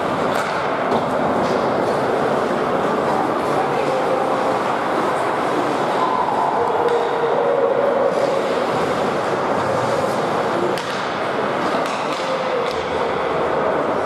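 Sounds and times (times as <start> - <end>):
distant voices: 0.0 - 14.0
skates on ice: 8.1 - 13.6.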